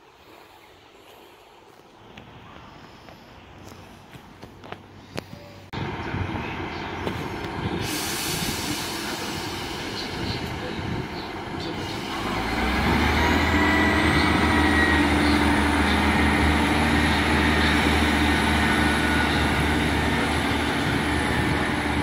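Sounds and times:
train diesel engine drone: 0:05.4 - 0:22.0.

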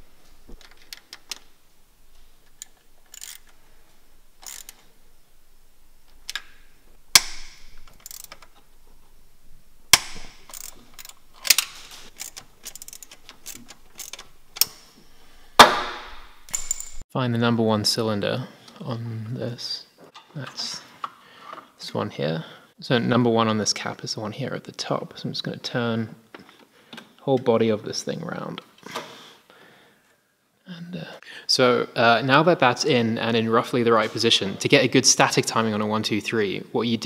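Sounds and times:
metallic clicks and knocks of tools: 0:02.4 - 0:03.6, 0:04.4 - 0:04.8, 0:07.2 - 0:08.6, 0:09.9 - 0:14.9, 0:16.5 - 0:17.0.

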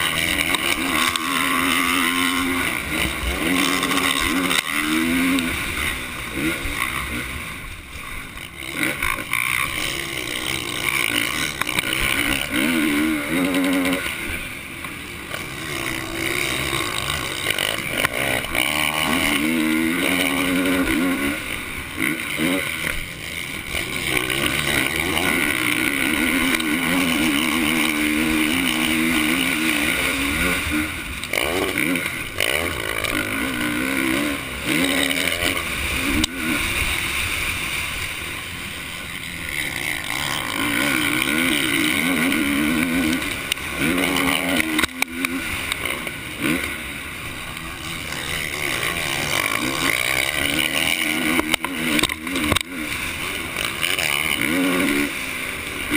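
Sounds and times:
motorcycle engine at full throttle: 0:00.0 - 0:55.9.

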